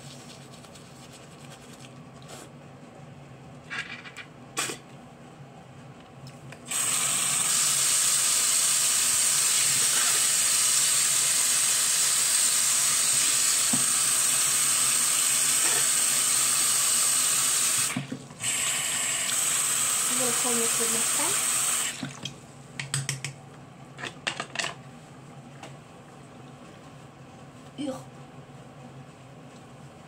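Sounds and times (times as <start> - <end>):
tap running into sink: 13.6 - 14.0.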